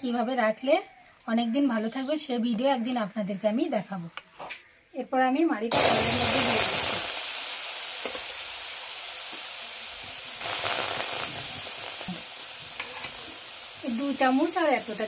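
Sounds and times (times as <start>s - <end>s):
fruit pulp sizzling in hot pan: 5.7s - 15.0s.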